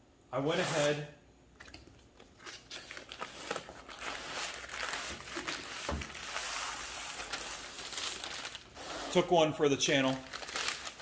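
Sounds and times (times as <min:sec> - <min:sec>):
packing paper crinkling: 0:02.2 - 0:08.9, 0:09.8 - 0:11.0.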